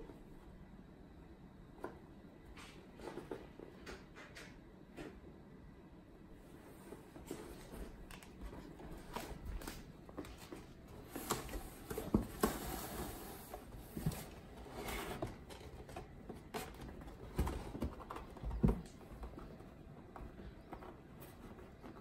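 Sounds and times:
paws thumping on cardboard: 0:13.6 - 0:22.0.

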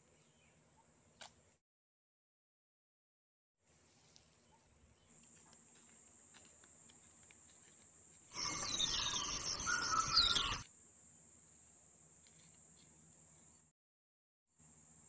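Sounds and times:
insects droning: 0:05.0 - 0:13.7, 0:14.6 - 0:15.0
bird calls with falling whistles: 0:08.4 - 0:10.6.

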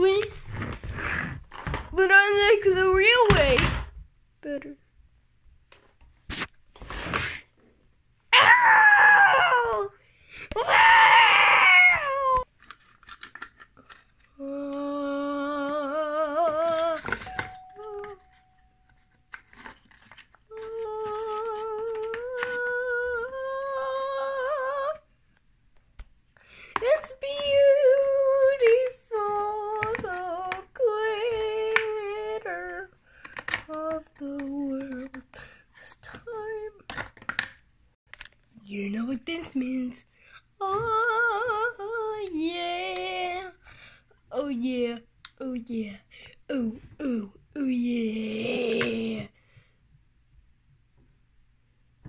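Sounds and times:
person wailing: 0:08.3 - 0:12.4
high voice singing wordless notes: 0:14.4 - 0:18.4, 0:20.5 - 0:25.1, 0:26.8 - 0:32.9, 0:38.7 - 0:43.6, 0:44.4 - 0:49.3.

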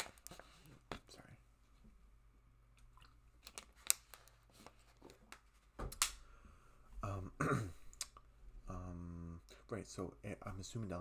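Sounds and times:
man clearing his throat: 0:07.2 - 0:07.8.

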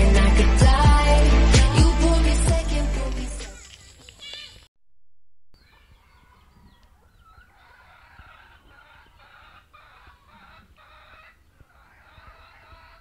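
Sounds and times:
chickens clucking: 0:05.7 - 0:13.0.

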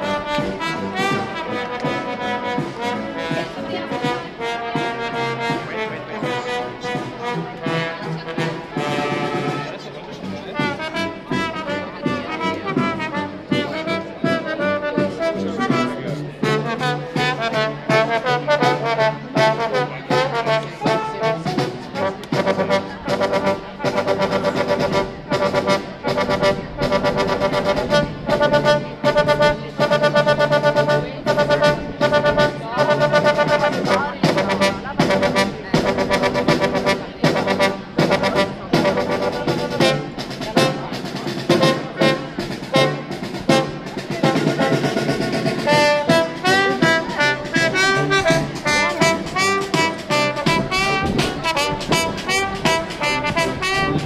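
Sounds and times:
brass band playing: 0:00.0 - 0:54.0
snare drum beat: 0:33.1 - 0:54.0.

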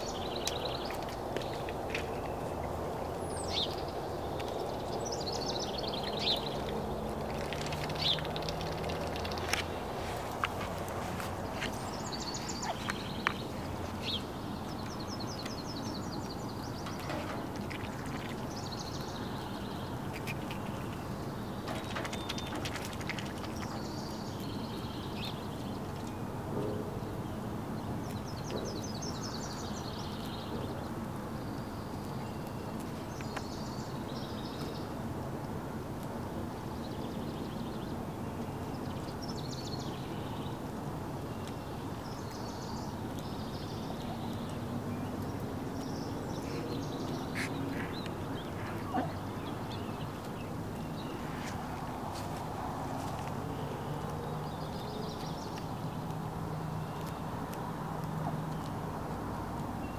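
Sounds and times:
hen pecking grass clicks: 0:00.0 - 0:26.2, 0:41.4 - 0:59.8
outdoor background noise: 0:00.0 - 0:59.9
small bird singing trills: 0:03.2 - 0:06.7.

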